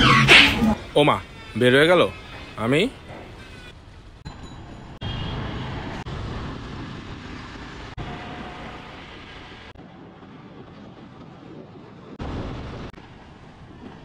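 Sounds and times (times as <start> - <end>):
motorcycle engine and road noise: 0.0 - 14.0
traffic: 0.0 - 14.0
wind rumble on microphone: 9.0 - 14.0.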